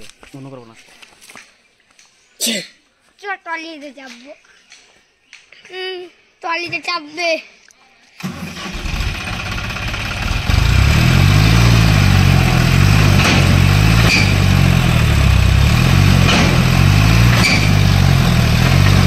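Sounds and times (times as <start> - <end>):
tractor engine droning under load: 8.2 - 19.0.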